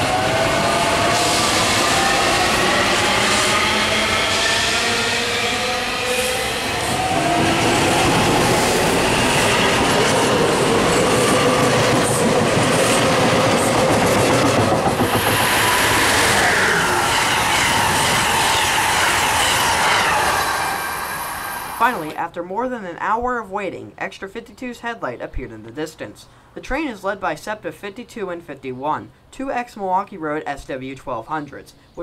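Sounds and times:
train wheels rumbling on rail: 0:00.0 - 0:22.1
train whine sliding down: 0:00.0 - 0:22.2.

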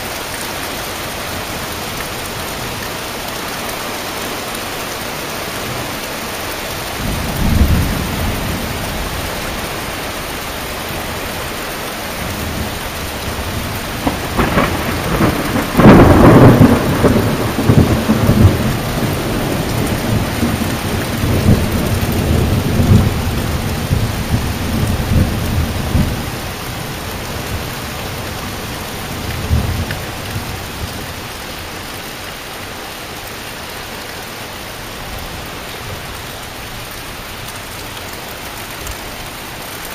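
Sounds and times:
heavy rain: 0:00.0 - 0:39.9
thunder rumbling: 0:07.0 - 0:09.7, 0:12.2 - 0:31.1.

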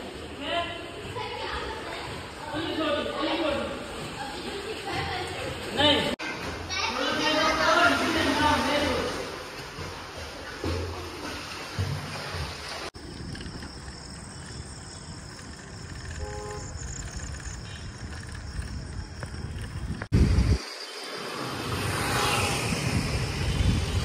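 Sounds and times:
wind buffeting microphone: 0:13.0 - 0:20.6, 0:22.6 - 0:24.0
crickets chirping: 0:13.0 - 0:24.0.

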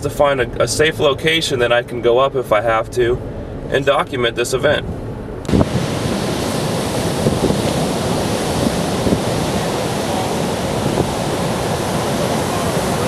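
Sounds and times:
wind buffeting microphone: 0:04.9 - 0:13.0
heavy surf breaking: 0:05.5 - 0:13.0.

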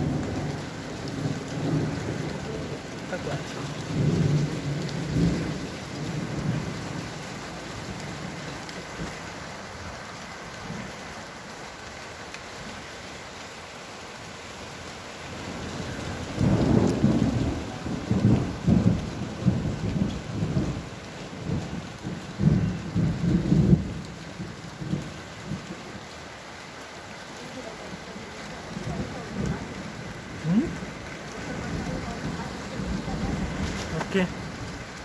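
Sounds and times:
thunder rumbling: 0:00.0 - 0:09.1, 0:15.5 - 0:25.7, 0:27.9 - 0:35.0
steady rain: 0:00.0 - 0:35.0.

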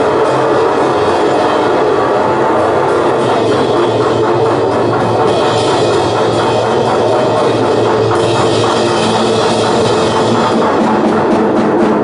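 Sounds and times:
distorted noise and guitar: 0:00.0 - 0:12.0
rapid drumming: 0:00.0 - 0:12.0.

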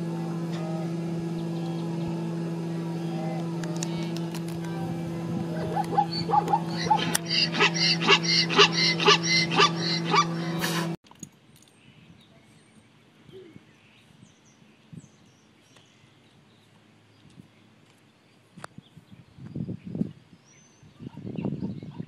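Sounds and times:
steady low drone: 0:00.0 - 0:11.0
zebra barking yelps: 0:05.6 - 0:10.8.

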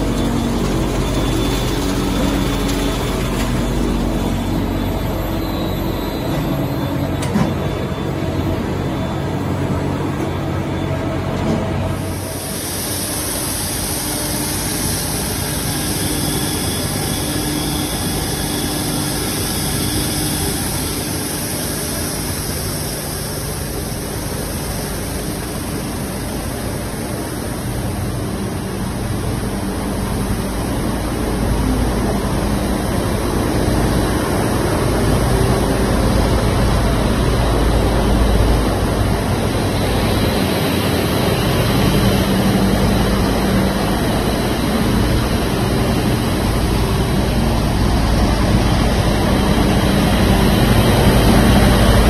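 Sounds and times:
industrial machinery hum: 0:00.0 - 0:52.0
machinery hiss: 0:11.9 - 0:28.6.

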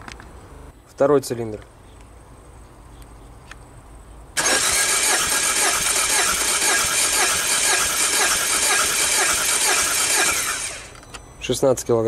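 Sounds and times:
engine cranking on starter motor: 0:04.4 - 0:11.1.

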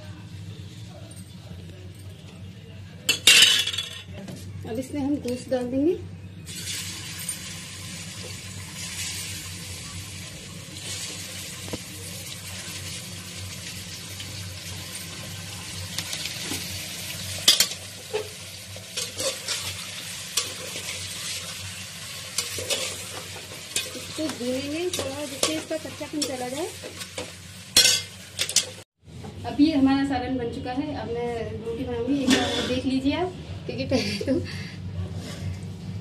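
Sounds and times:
chicken sizzling in hot oil: 0:06.5 - 0:28.9.

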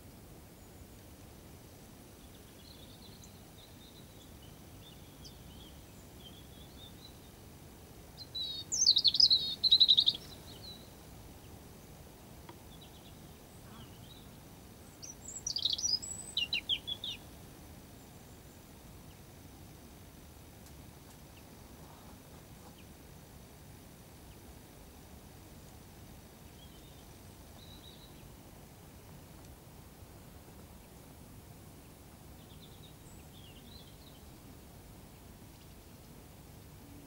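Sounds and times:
outdoor background noise: 0:00.0 - 0:37.0
songbird trilling: 0:08.2 - 0:10.9, 0:15.0 - 0:17.2
faint bird twittering: 0:08.2 - 0:11.6, 0:12.7 - 0:17.3.

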